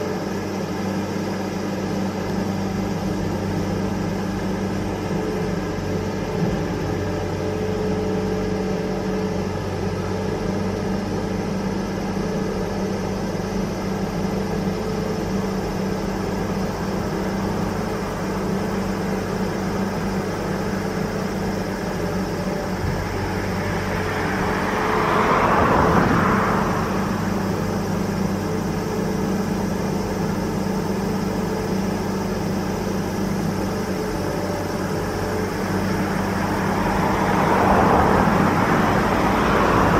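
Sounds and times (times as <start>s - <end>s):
diesel machinery drone: 0.0s - 39.9s
rushing noise: 22.7s - 29.6s, 34.8s - 39.9s.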